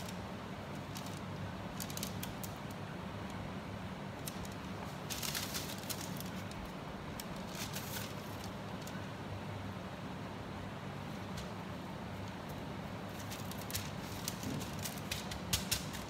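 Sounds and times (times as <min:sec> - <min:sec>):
baking paper crinkling: 0:00.0 - 0:03.0, 0:04.2 - 0:09.1, 0:12.2 - 0:16.0.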